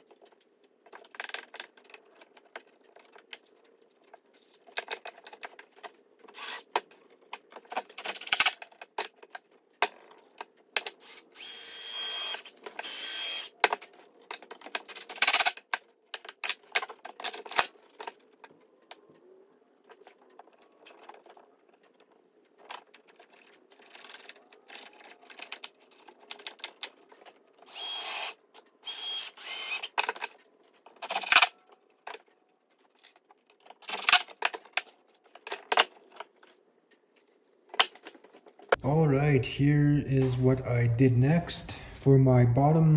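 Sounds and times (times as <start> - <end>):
cordless drill whining: 6.4 - 6.7, 11.0 - 13.5, 27.7 - 29.9.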